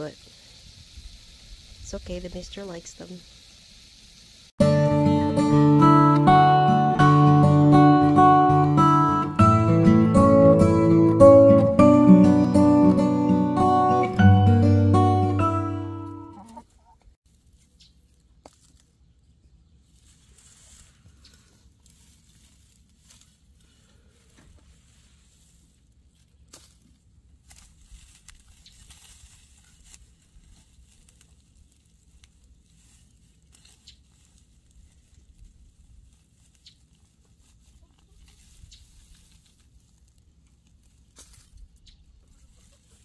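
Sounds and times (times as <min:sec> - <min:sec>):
acoustic guitar music: 0:04.6 - 0:16.6
hens clucking: 0:16.2 - 0:17.1, 0:41.8 - 0:43.0.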